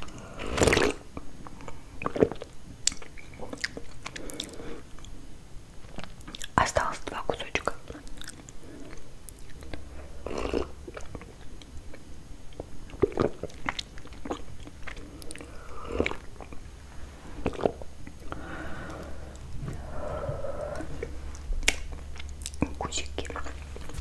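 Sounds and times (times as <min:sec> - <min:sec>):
wet lip clicks: 0:02.0 - 0:05.2, 0:21.6 - 0:24.0.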